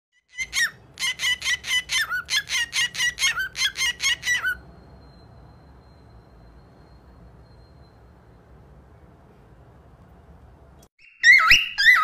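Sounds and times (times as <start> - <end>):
cockatiel chirping: 0.3 - 4.6, 11.0 - 12.0.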